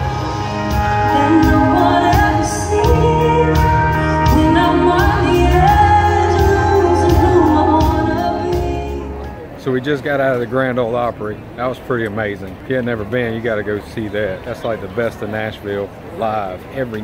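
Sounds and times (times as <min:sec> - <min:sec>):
live band playing: 0:00.0 - 0:09.6
woman singing into microphone: 0:00.8 - 0:09.4.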